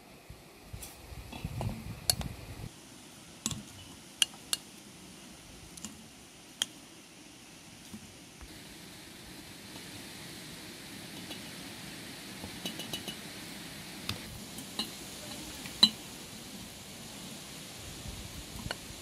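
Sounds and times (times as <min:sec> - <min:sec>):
steady low hiss: 0:00.0 - 0:19.0
spoon clinking on bowl and jars: 0:12.6 - 0:13.2.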